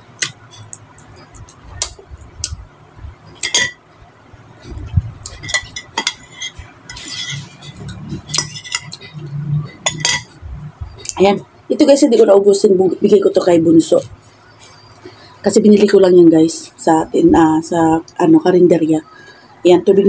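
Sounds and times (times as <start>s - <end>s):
metal spoon clinking on bowl: 0.2s - 0.8s, 3.4s - 3.8s, 5.2s - 10.4s.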